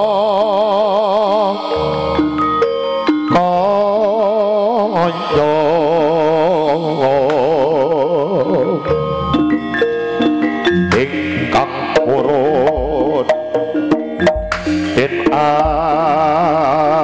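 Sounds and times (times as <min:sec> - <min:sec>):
wavering melody with vibrato: 0:00.0 - 0:17.0
metallophone notes: 0:01.2 - 0:17.0
drums: 0:08.9 - 0:17.0.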